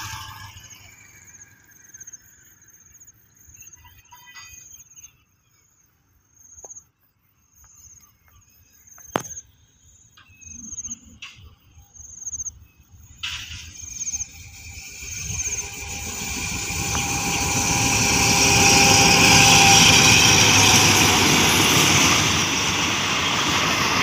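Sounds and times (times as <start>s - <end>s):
distant locomotive rumble: 0.0s - 3.2s, 12.7s - 24.0s
insects chirping: 0.0s - 24.0s.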